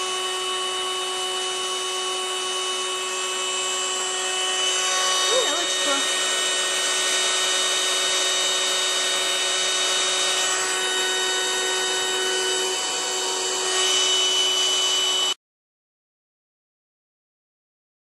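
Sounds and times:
vacuum sealer pump whining: 0.0 - 15.4.

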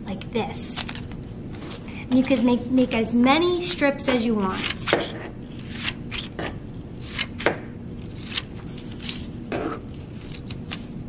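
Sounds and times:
scissors snipping paper: 8.1 - 9.3.

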